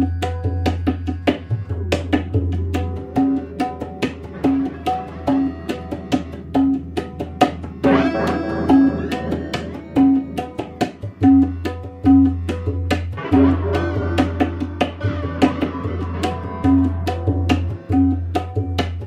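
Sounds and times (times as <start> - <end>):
hand drum beat: 0.0 - 19.0
plucked notes: 0.0 - 19.0.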